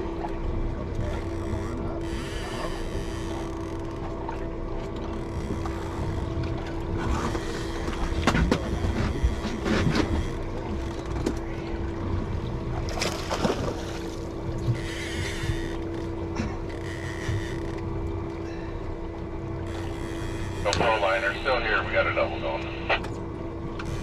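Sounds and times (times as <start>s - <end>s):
clatters on boat: 0.0s - 21.2s
outboard motor running: 0.0s - 24.0s
water splashes: 6.3s - 16.9s.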